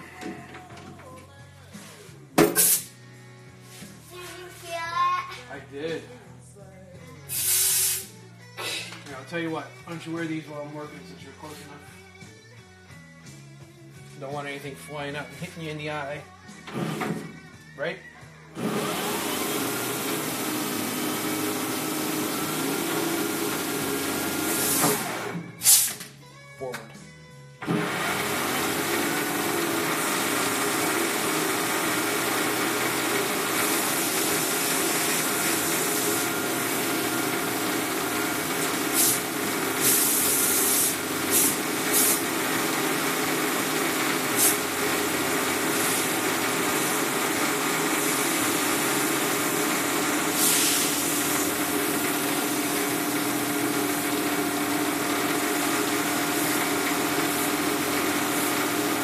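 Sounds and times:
lathe tool scraping hiss: 2.6 - 3.0, 7.3 - 8.2, 38.6 - 42.4, 44.3 - 44.8, 50.2 - 53.1.

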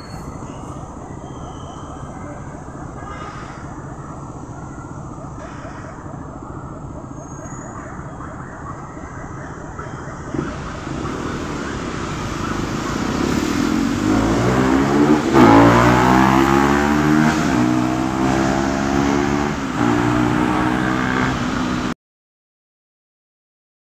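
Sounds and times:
motorcycles and cars accelerating: 10.3 - 22.0.

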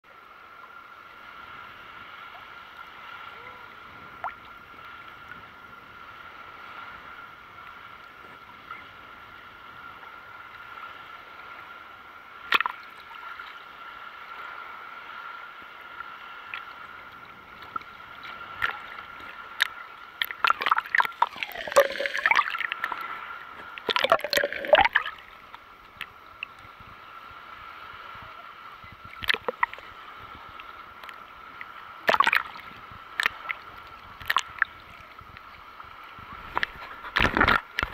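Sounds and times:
sea water sloshing against camera: 16.2 - 37.9
underwater gurgling: 16.4 - 37.9
short sharp splashes: 20.2 - 23.0, 32.1 - 32.6.

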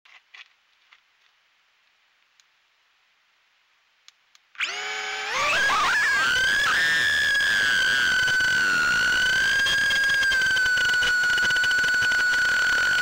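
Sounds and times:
drone motors whining: 4.6 - 13.0.

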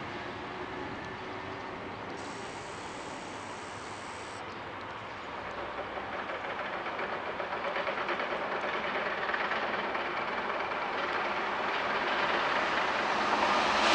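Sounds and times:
train wheels rumbling on rails: 0.0 - 13.9
faint rail clacks: 4.7 - 13.4.

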